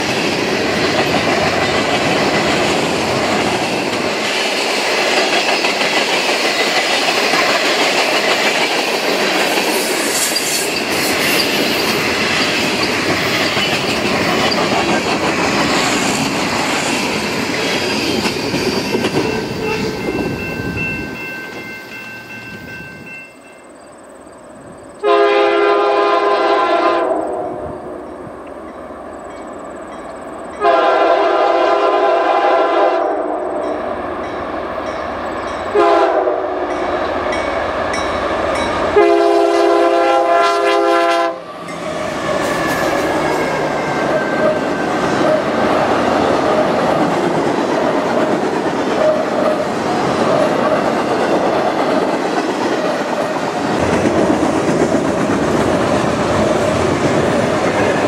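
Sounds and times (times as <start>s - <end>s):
train wheels on rails: 0.0s - 58.0s
locomotive air horn: 25.0s - 27.6s, 30.6s - 33.6s, 35.7s - 36.7s, 39.0s - 41.5s.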